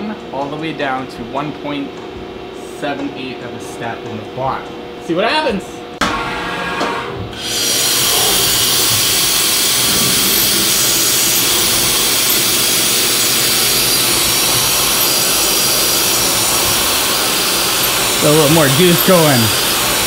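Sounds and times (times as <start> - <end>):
coolant sprayer hissing: 7.4 - 20.0
milling machine drilling metal: 7.4 - 20.0.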